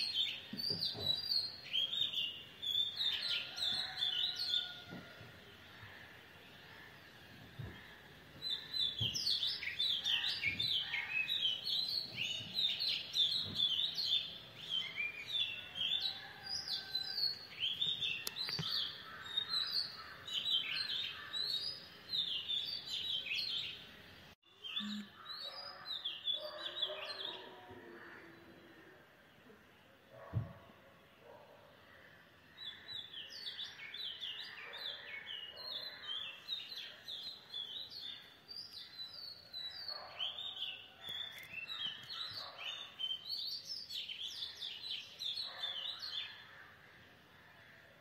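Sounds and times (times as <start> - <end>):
birds chirping: 5.9 - 31.6.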